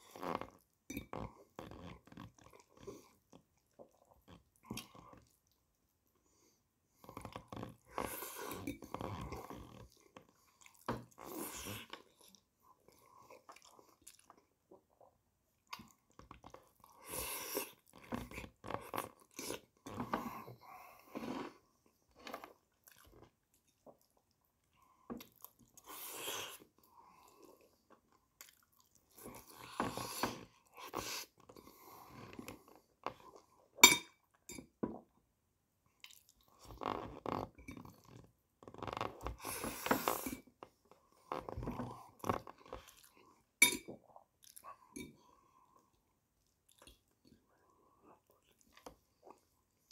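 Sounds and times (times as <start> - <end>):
wet chewing and mouth smacking: 11.8 - 16.9, 22.7 - 26.9, 27.6 - 29.6, 35.9 - 36.6, 46.4 - 47.4.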